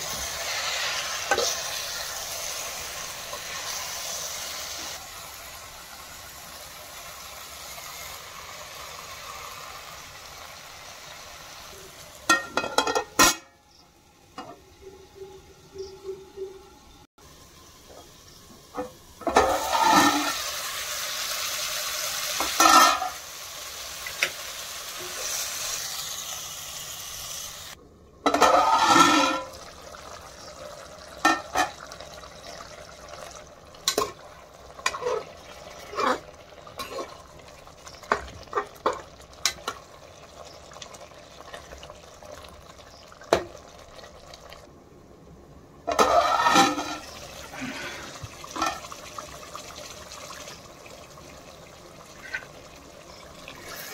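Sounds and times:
hiss of bubbling and steam: 0.0 - 12.3, 17.2 - 27.8, 46.0 - 53.9
curry boiling in a pot: 0.0 - 13.2, 17.2 - 27.8, 28.6 - 53.9.

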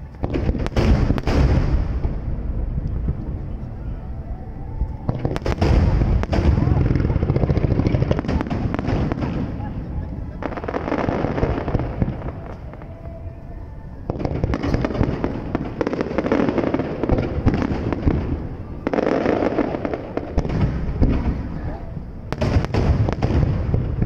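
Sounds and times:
fireworks bursting and crackling: 0.0 - 3.7, 5.0 - 13.0, 14.0 - 24.0
low rumble: 0.0 - 18.9.

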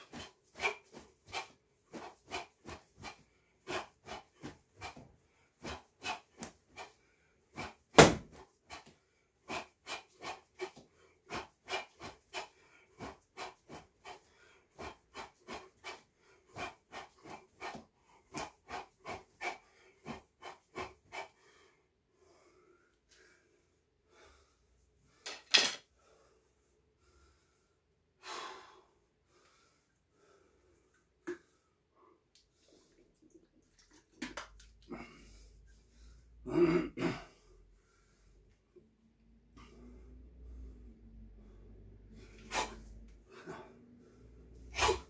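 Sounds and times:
sharp exhalations with punches: 0.0 - 21.4, 42.3 - 43.7, 44.6 - 45.0.

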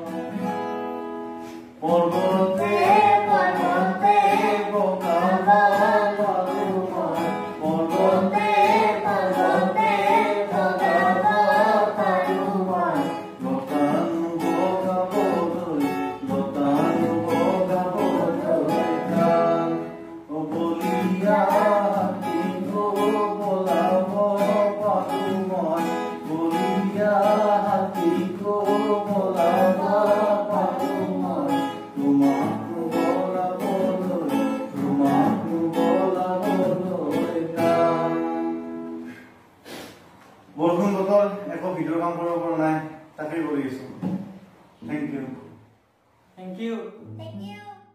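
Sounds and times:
acoustic guitars strummed: 0.0 - 42.5
man and boy singing: 1.8 - 39.1.

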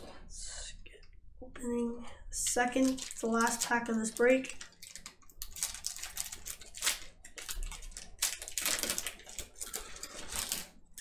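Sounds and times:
foil pack crinkling and tearing: 2.6 - 11.0.

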